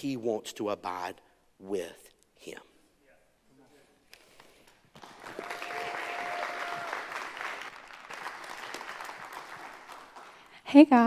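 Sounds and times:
congregation applauding: 4.9 - 10.6.

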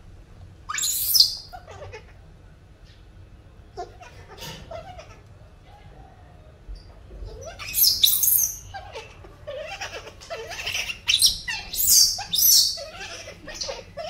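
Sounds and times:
baby monkey squealing cries: 0.7 - 2.2, 3.8 - 5.2, 7.3 - 14.0.

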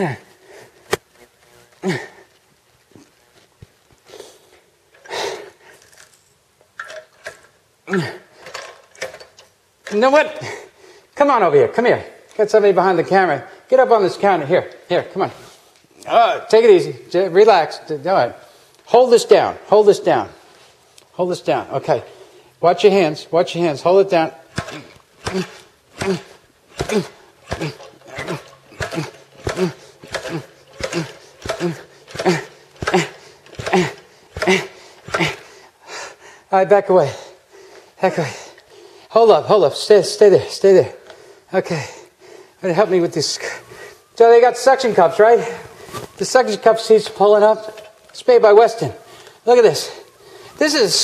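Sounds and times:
man groaning: 0.0 - 0.3, 1.8 - 2.3, 7.9 - 8.3, 16.0 - 16.5, 24.6 - 35.6, 38.0 - 38.6
man grunting: 0.0 - 0.3, 1.8 - 2.3, 7.9 - 8.3, 24.6 - 35.6, 38.0 - 38.6
man sniffing: 4.0 - 5.8, 24.5 - 36.5
man breathing hard: 4.0 - 5.9, 10.4 - 11.2, 24.5 - 39.1, 41.0 - 42.6, 43.4 - 44.1, 50.0 - 50.6
fry cutter knocking: 24.5 - 35.4.

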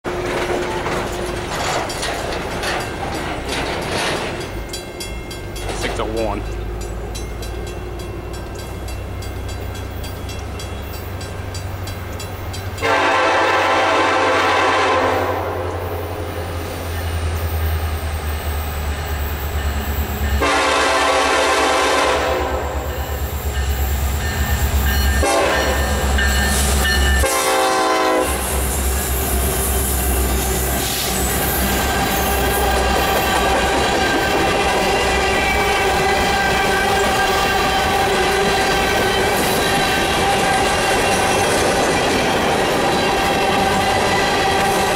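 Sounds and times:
train cars clickety-clack: 0.0 - 44.9
locomotive air horn blasts: 12.8 - 16.0, 20.4 - 22.9, 25.2 - 26.0, 27.2 - 28.6, 35.0 - 40.8.

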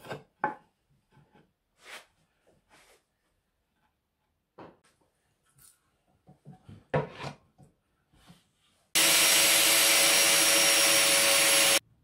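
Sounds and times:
cordless drill drilling into wood: 9.0 - 11.8.

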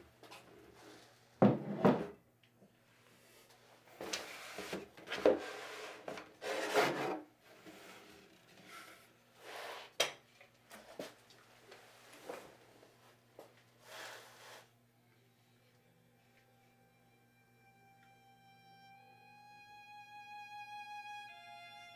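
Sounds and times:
faint steady hum: 7.1 - 21.9.

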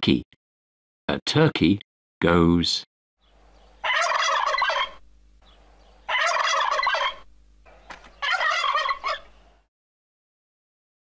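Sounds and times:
turkey gobbling: 3.7 - 9.6
turkey short calls: 3.8 - 9.6.

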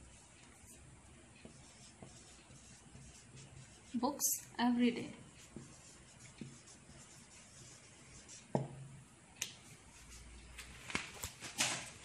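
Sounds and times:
marker writing on paper: 1.4 - 4.4, 5.3 - 8.6.

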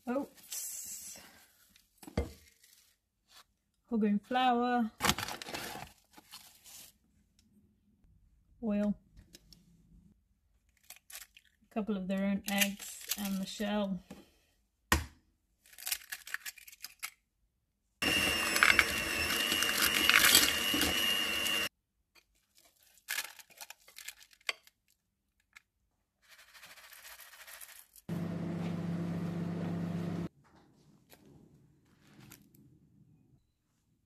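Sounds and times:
batter mixing in glass bowl: 18.0 - 21.7
microwave oven humming: 18.0 - 21.7, 28.1 - 30.3.

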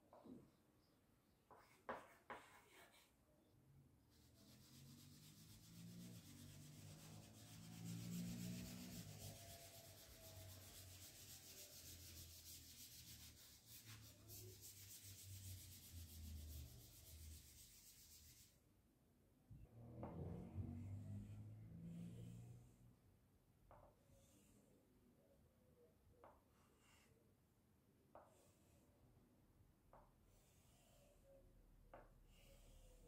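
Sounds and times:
scraping on a blackboard: 1.5 - 3.2, 4.1 - 18.6, 26.2 - 27.2, 28.1 - 29.1, 29.9 - 33.0.

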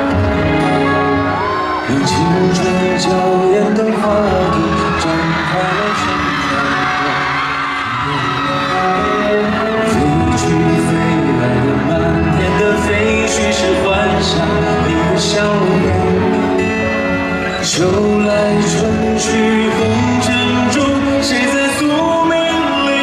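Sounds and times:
man singing into microphone: 0.0 - 23.0.

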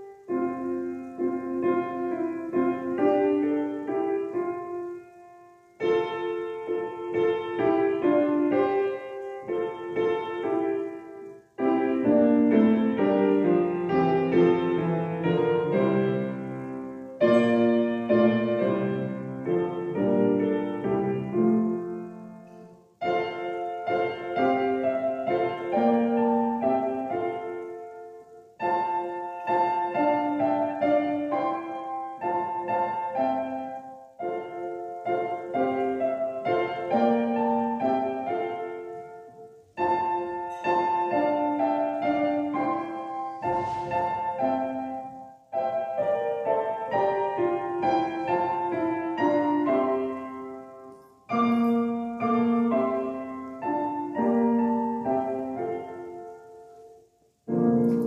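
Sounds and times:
slow solo piano music: 0.0 - 58.0.

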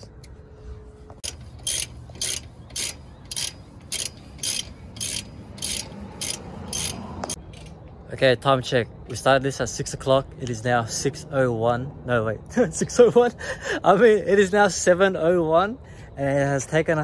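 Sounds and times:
ratchet wrench clicking: 1.2 - 7.8.

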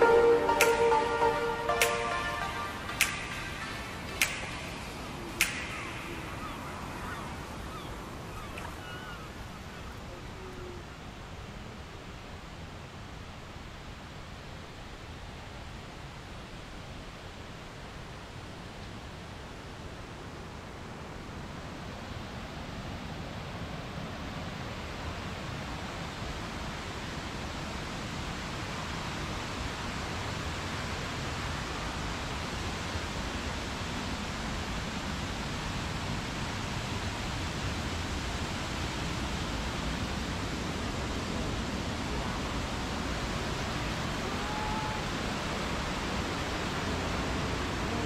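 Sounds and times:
waterfall rushing: 0.0 - 11.6, 23.9 - 48.0.

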